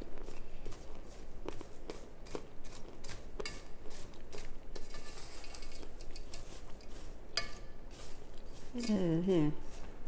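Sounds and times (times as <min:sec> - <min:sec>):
crunchy food being chewed: 0:01.4 - 0:04.6.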